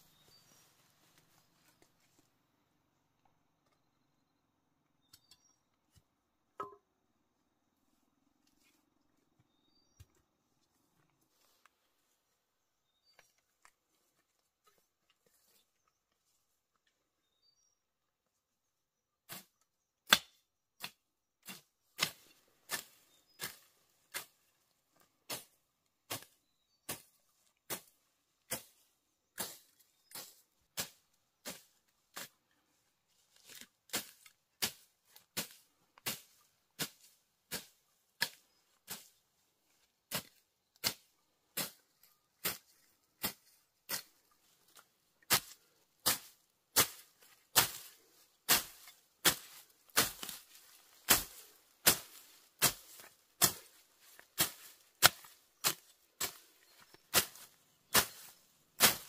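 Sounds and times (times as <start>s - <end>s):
hand hoe chopping soil: 19.3s - 24.6s, 25.2s - 32.5s, 33.2s - 39.2s, 39.8s - 59.0s.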